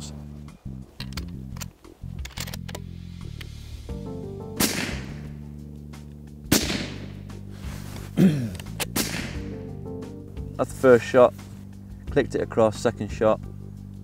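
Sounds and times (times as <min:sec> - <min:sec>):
background music: 0:00.0 - 0:14.0
rifle shots: 0:04.6 - 0:05.3, 0:06.5 - 0:07.2, 0:08.9 - 0:09.5.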